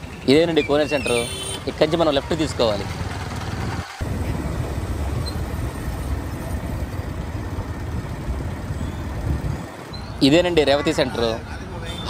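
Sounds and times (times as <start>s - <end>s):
road noise: 0.0s - 12.0s
wind rumble: 3.4s - 10.1s.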